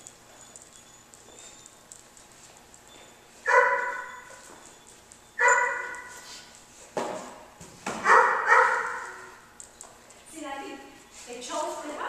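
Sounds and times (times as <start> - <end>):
dog barking: 3.4 - 4.3, 5.4 - 6.2, 8.0 - 9.3.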